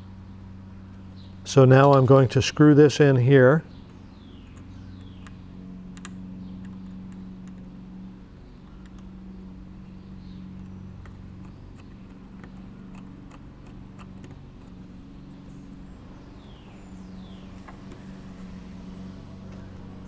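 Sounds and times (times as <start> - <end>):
steady low hum: 0.0 - 20.0
screw clicks and taps: 10.6 - 14.8.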